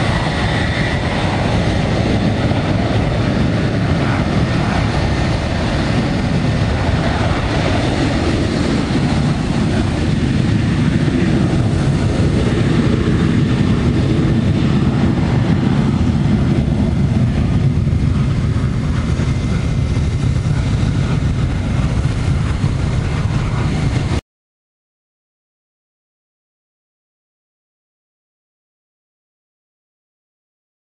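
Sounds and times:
jet engines roaring at takeoff: 0.0 - 24.2.

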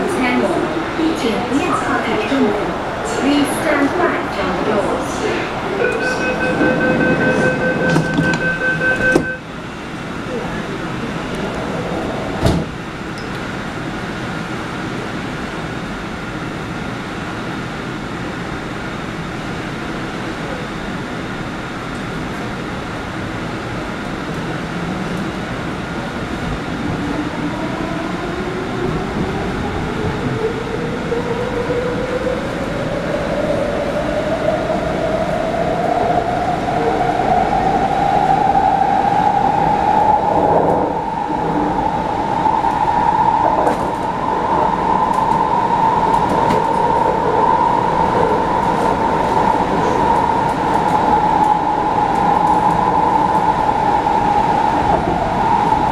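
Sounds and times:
train running noise: 0.0 - 55.9
train traction motor whine: 2.9 - 13.8.

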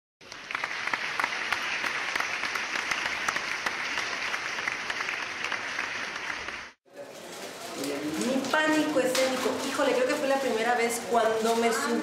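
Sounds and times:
audience applause: 0.2 - 6.8.

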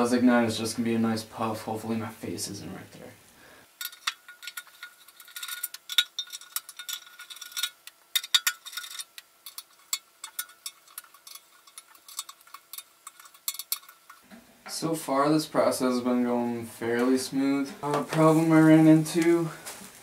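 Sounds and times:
light metallic clicks and clinks: 3.8 - 14.2.

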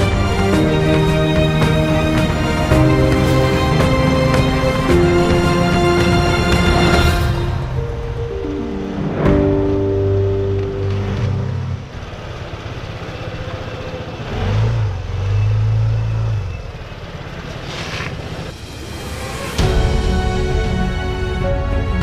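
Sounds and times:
scooter engine running: 10.1 - 15.1.

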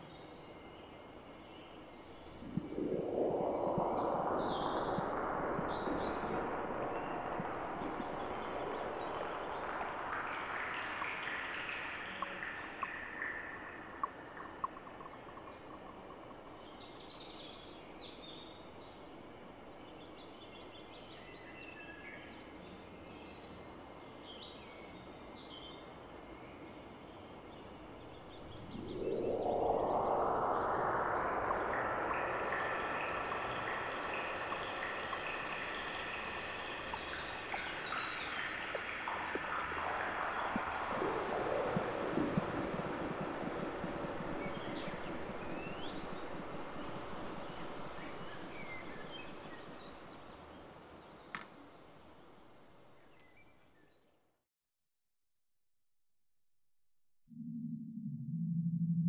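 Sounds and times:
synthesized noise drone: 2.2 - 16.3, 28.0 - 50.2.

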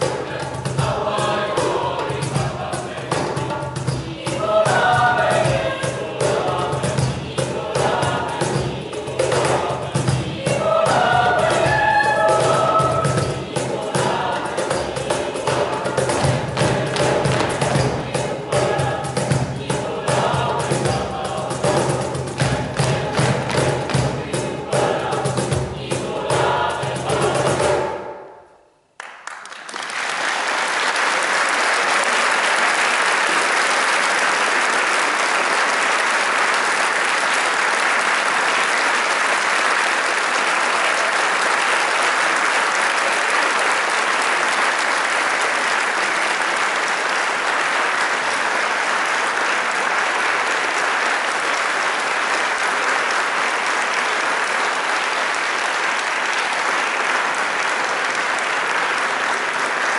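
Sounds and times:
mixed choir singing: 0.0 - 28.3
audience applause: 29.0 - 59.9.

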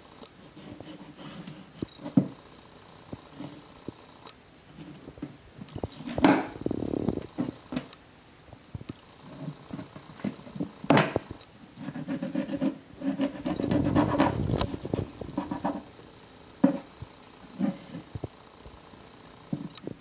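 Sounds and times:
knife tapping and scraping board: 16.6 - 16.9.

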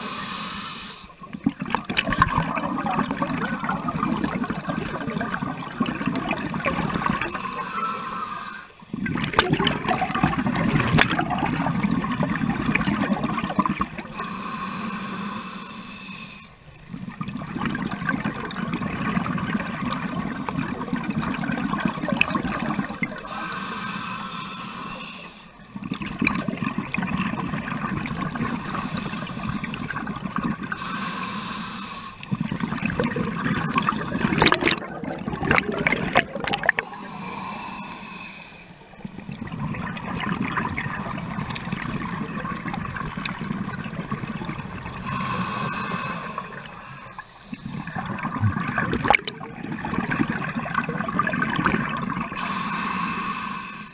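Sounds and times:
regulator hissing inhale: 0.0 - 1.2, 7.2 - 8.8, 14.1 - 16.7, 22.4 - 25.7, 28.4 - 30.1, 30.7 - 32.6, 33.4 - 34.6, 36.6 - 39.2, 44.7 - 48.2, 52.3 - 53.9
exhaled bubbles rushing: 1.3 - 7.4, 8.9 - 14.1, 16.9 - 23.3, 25.6 - 28.7, 29.4 - 30.8, 32.3 - 37.0, 38.9 - 45.2, 46.4 - 52.4.

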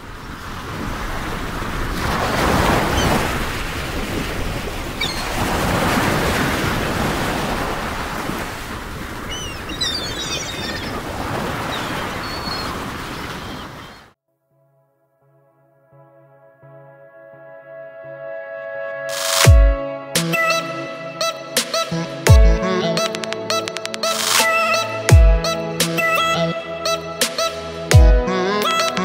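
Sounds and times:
wind and water rushing: 0.0 - 14.2.

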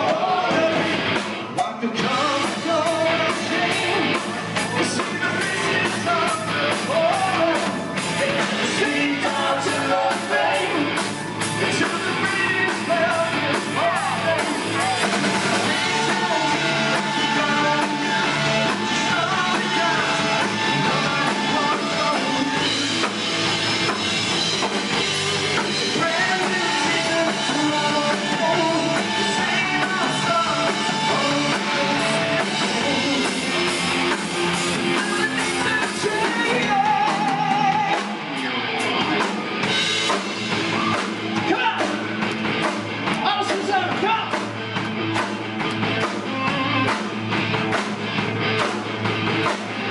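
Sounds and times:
person singing: 0.0 - 1.0, 1.6 - 23.3, 25.5 - 33.7, 34.9 - 39.3
live rock band playing: 0.0 - 49.9.

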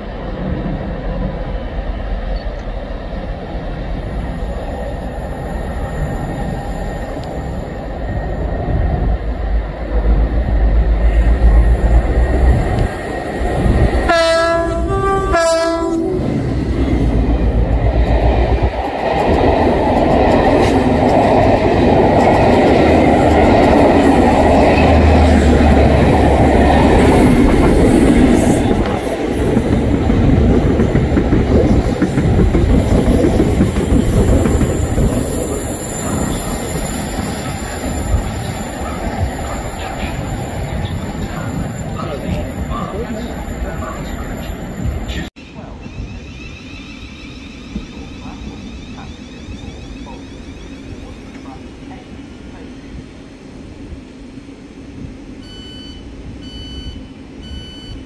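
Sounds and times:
locomotive horn blasts: 14.1 - 16.4.

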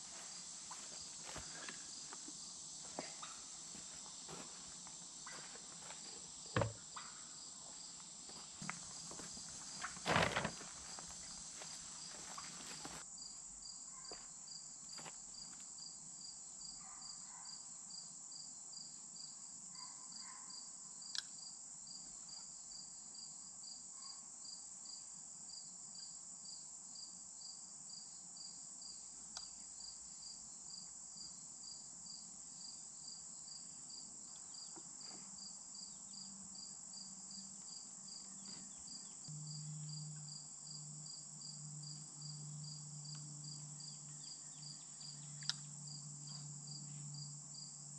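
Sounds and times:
insects trilling and chirping: 0.0 - 47.9
low steady hum: 39.3 - 47.5.

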